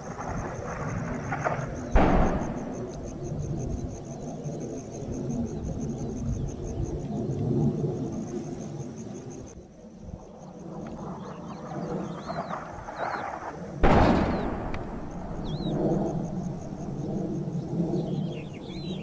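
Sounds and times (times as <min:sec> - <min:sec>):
crickets chirping: 0:00.0 - 0:19.0
distant explosion boom: 0:01.2 - 0:03.6, 0:13.8 - 0:16.6.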